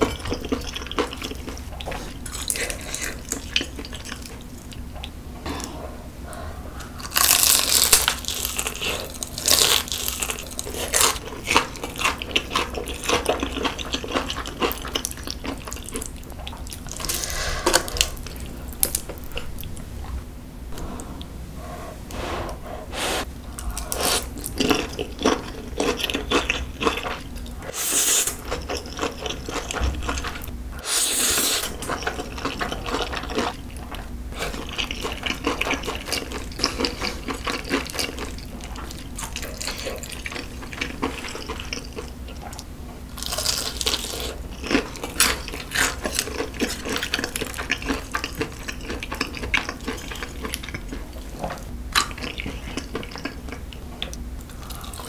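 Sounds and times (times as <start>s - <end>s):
wet chewing: 23.4s - 30.6s, 31.3s - 55.0s.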